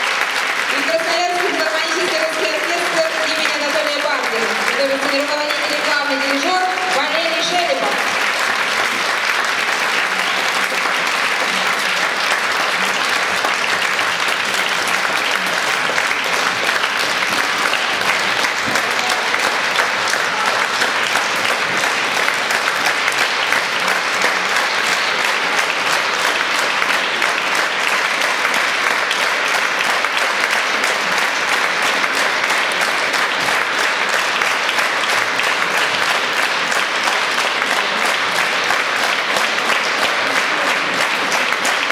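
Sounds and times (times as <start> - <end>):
large audience applauding: 0.0 - 41.9.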